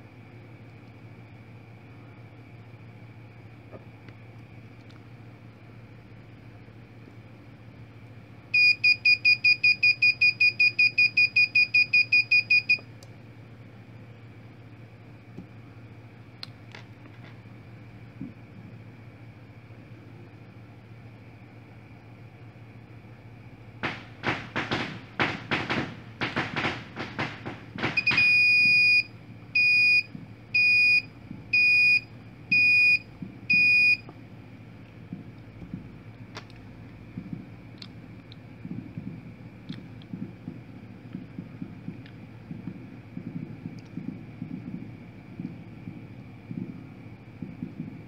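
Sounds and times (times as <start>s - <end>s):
buzzer beeping rapidly: 28.0s - 30.0s.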